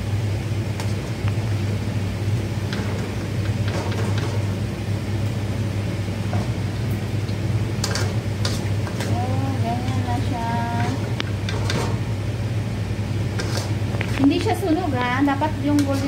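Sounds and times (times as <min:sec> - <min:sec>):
low mechanical hum: 0:00.0 - 0:16.0
onions sizzling in hot oil: 0:00.0 - 0:16.0
skimmer clicks and scrapes: 0:02.6 - 0:04.6, 0:07.8 - 0:12.1, 0:13.3 - 0:14.6, 0:15.6 - 0:16.0.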